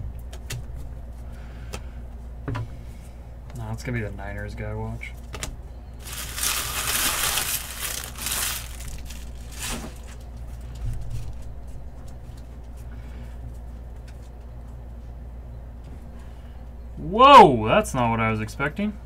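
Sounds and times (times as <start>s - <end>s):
foil wrapper tearing and crinkling: 6.0s - 10.2s
cards rustling: 6.0s - 10.4s.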